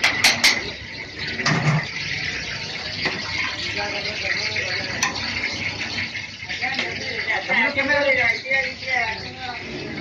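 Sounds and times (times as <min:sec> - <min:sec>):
steady kitchen hiss: 0:00.0 - 0:10.0.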